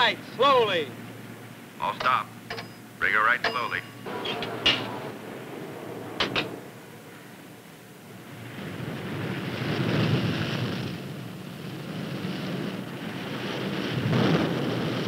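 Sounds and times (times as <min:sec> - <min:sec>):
heavy seas breaking over hull: 0:00.0 - 0:15.0
sharp metal clacks: 0:02.0 - 0:02.8, 0:03.4 - 0:04.9.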